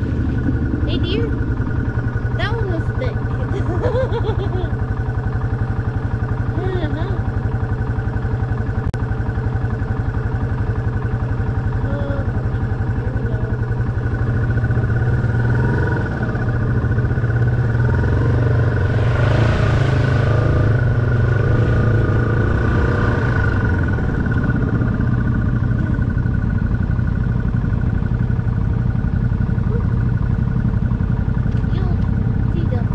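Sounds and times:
motorcycle engine running: 0.0s - 32.9s
rush of noise: 14.6s - 26.7s.

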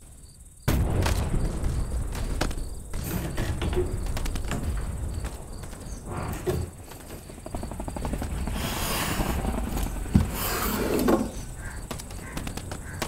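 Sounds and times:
things being shifted about: 10.1s - 11.5s.

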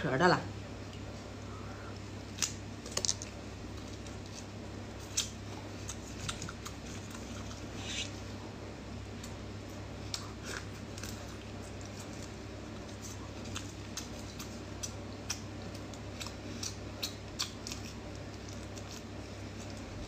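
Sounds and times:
steady low hum: 0.0s - 20.0s
shrimp being chewed: 2.3s - 8.0s, 10.1s - 20.0s.

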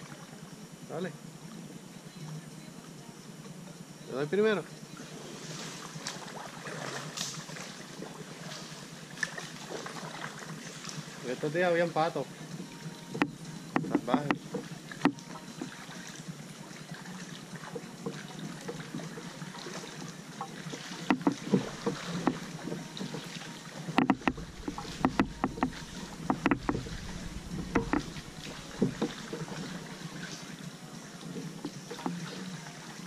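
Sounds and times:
background hiss: 0.0s - 33.0s
paddle splashing in water: 4.9s - 11.7s, 12.3s - 33.0s
sharp knocks: 24.0s - 29.2s
wind rumble on microphone: 24.0s - 30.1s.

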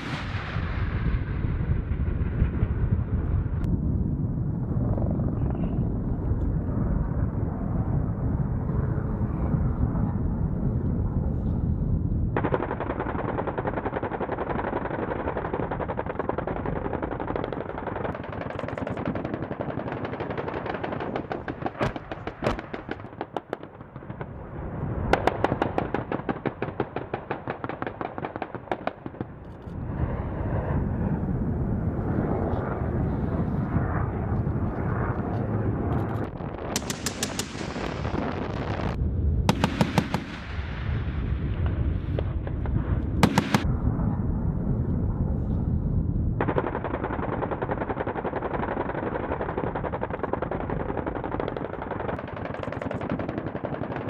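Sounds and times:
rapid cannon fire: 0.0s - 3.6s, 12.3s - 29.4s, 36.2s - 44.1s, 46.3s - 54.0s.

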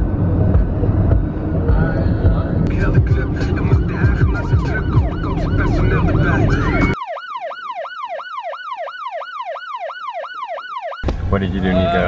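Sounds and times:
road noise inside moving car: 0.0s - 7.0s
police siren yelping: 3.2s - 12.0s.

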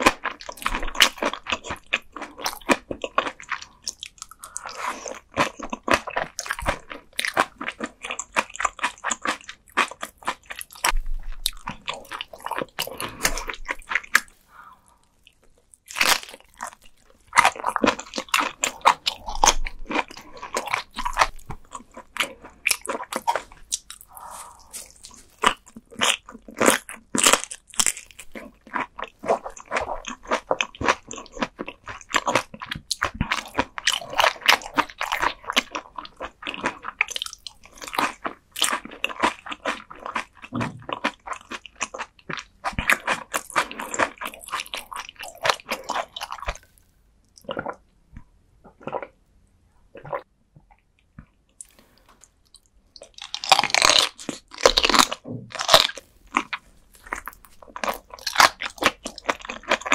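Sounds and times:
wet chewing: 0.0s - 49.2s, 50.0s - 59.9s
crunching bites: 53.0s - 59.9s.

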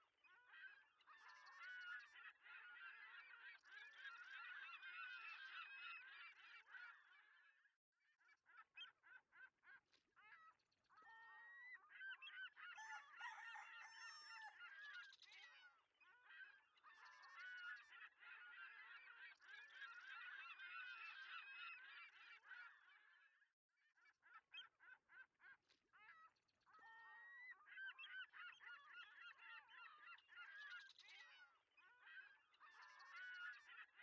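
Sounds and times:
flock of birds calling: 0.3s - 7.4s, 11.0s - 23.3s, 26.8s - 34.0s.

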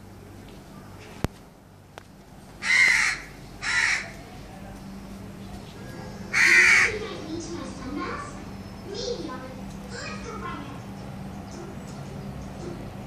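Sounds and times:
crow cawing: 2.6s - 4.2s, 6.3s - 7.0s.

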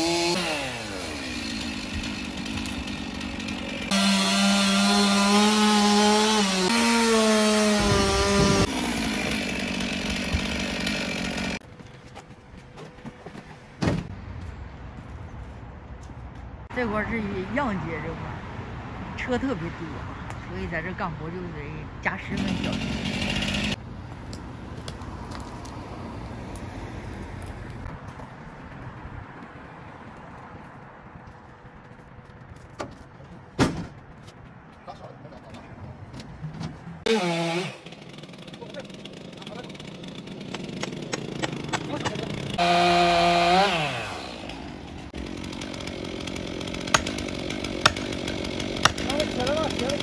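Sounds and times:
chainsaw revving and idling: 0.0s - 11.6s, 22.3s - 23.8s, 37.0s - 50.0s
road traffic passing: 11.6s - 50.0s
vehicle rumble: 23.7s - 37.1s.

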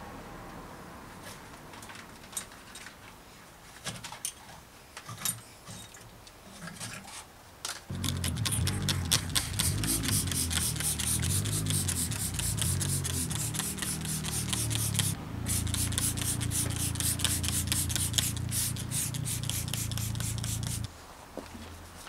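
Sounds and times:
spray bottle hissing: 8.0s - 20.9s.

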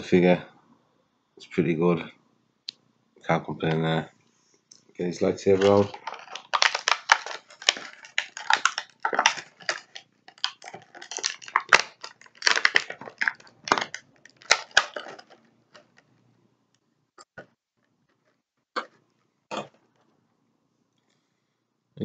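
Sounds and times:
plastic packaging crinkling: 5.1s - 16.0s.

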